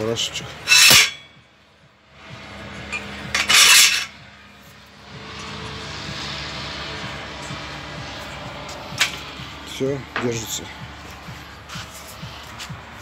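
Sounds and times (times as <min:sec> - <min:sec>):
soft rubbing of steel parts: 0:00.4 - 0:01.4, 0:02.2 - 0:05.9, 0:10.4 - 0:13.0
metal scrape: 0:00.6 - 0:01.4, 0:02.9 - 0:04.2.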